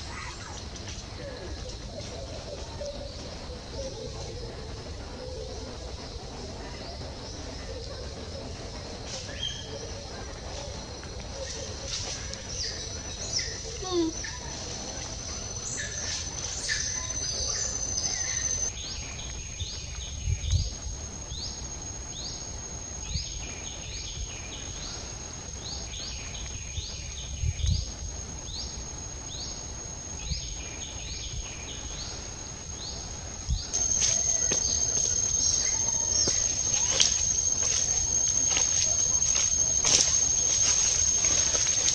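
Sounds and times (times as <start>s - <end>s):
high insect whine: 0.0s - 41.9s
short rising chirps: 33.8s - 41.9s.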